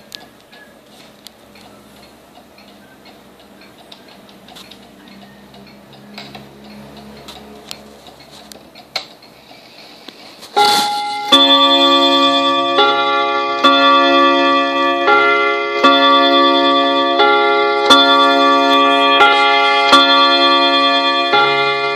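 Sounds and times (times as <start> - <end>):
table clock ticking: 0.0 - 9.4
clock hammers striking chime rods: 10.5 - 21.9.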